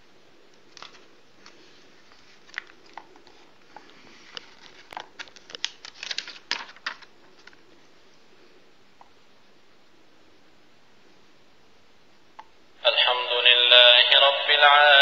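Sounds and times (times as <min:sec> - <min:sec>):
paper pages turning: 0:00.5 - 0:07.8.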